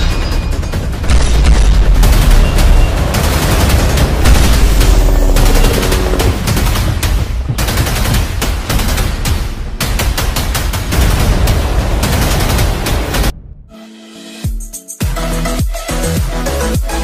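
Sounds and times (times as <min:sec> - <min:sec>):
rapid automatic gunfire: 0:00.0 - 0:13.3.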